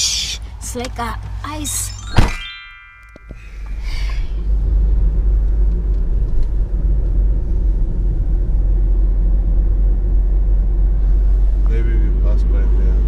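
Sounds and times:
car interior road rumble: 3.2 - 13.0.

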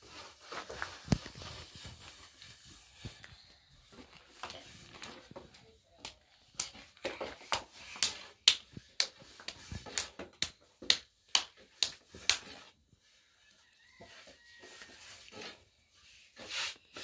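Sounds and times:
dough slapped by hand: 7.4 - 12.7.

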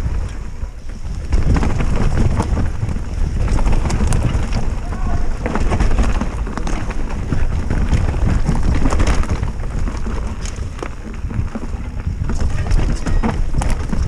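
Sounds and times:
bike rattling clicks and knocks: 0.0 - 14.0
bike tyres crunching over dirt: 0.0 - 14.0
wind rumble on microphone: 0.0 - 14.0.

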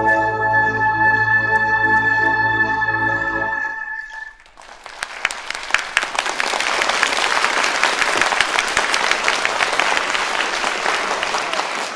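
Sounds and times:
audience applauding: 4.1 - 11.9.

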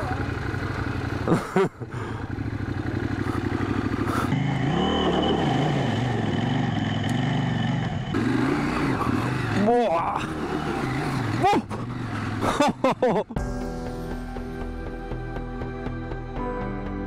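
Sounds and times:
motorcycle engine revving: 0.0 - 13.4.

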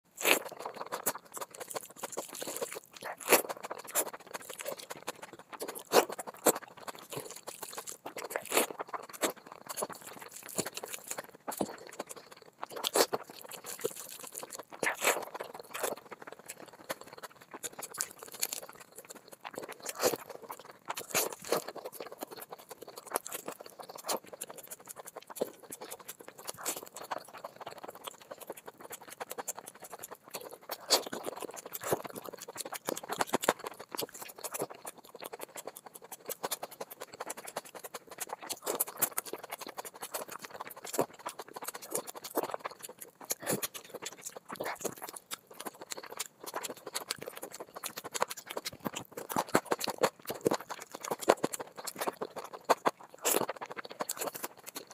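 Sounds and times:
wet chewing and lip smacks: 0.2 - 54.9.

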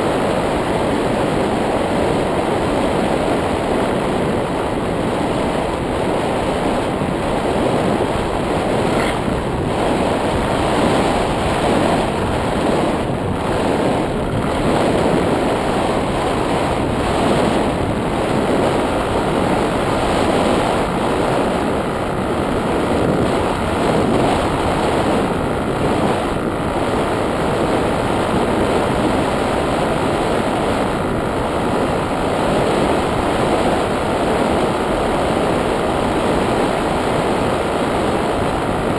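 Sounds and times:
airflow rushing on microphone: 0.0 - 38.9.

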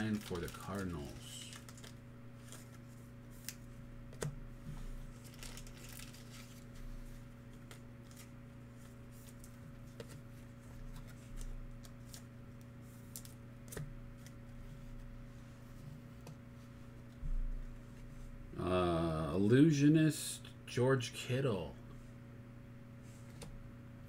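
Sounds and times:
trading cards clicking and rustling: 0.0 - 4.4
low electrical hum: 0.0 - 24.0.

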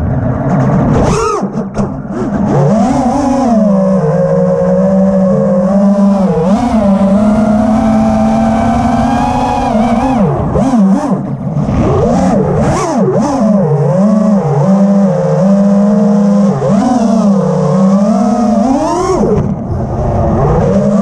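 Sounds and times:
quadcopter motor whine: 2.6 - 21.0
rushes of air: 17.6 - 21.0.

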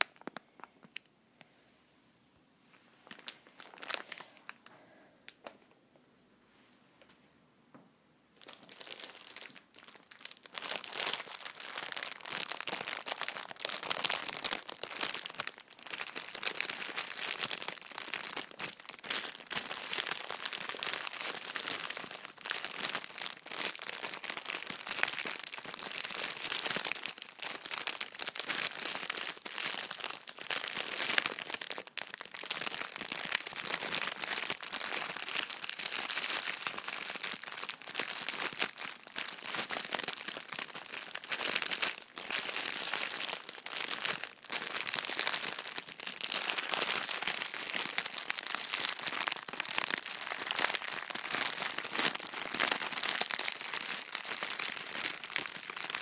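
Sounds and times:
plastic packaging crinkling: 0.0 - 1.1, 3.0 - 4.7, 8.4 - 56.0.

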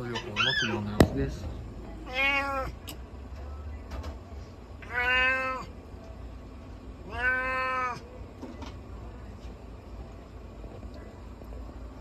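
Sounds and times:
cat meowing: 2.0 - 2.8, 4.8 - 5.7, 7.0 - 8.1.

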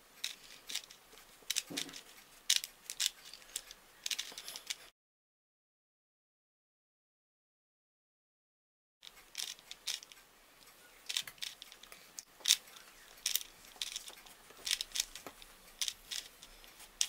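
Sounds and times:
puzzle cube plastic layers clicking: 0.2 - 4.8, 9.0 - 17.0.

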